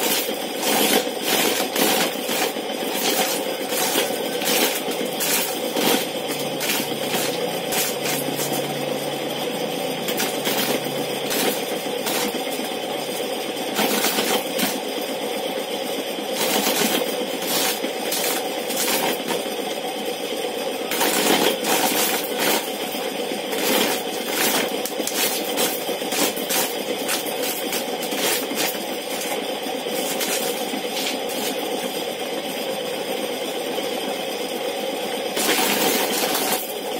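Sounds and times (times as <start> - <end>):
corn kernels rattling and pattering: 0.0 - 8.9, 9.9 - 14.9, 16.3 - 19.7, 20.9 - 32.0, 35.4 - 36.9
motor humming: 1.4 - 15.3, 20.8 - 32.2.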